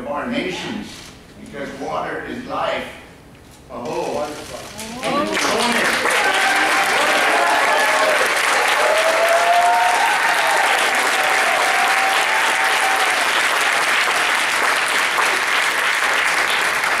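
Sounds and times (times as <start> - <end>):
audience applauding: 5.0 - 17.0.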